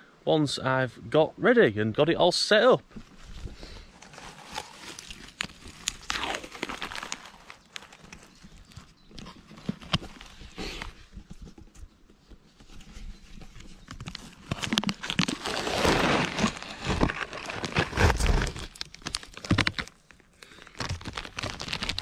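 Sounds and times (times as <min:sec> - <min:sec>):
plastic bag crinkling: 0:03.0 - 0:11.0, 0:13.8 - 0:22.0.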